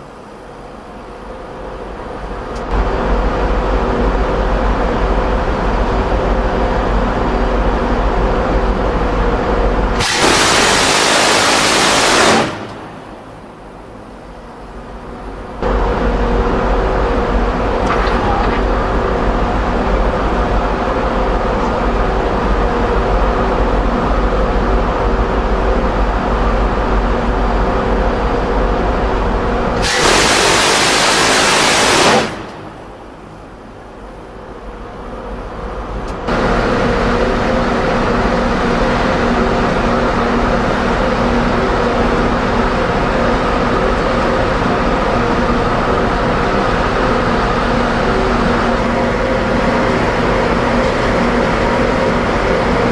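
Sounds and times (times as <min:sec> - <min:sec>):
low hum: 0:00.0 - 0:52.9
machinery noise: 0:08.6 - 0:52.9
gatling cannon firing: 0:10.0 - 0:13.0, 0:29.8 - 0:32.8.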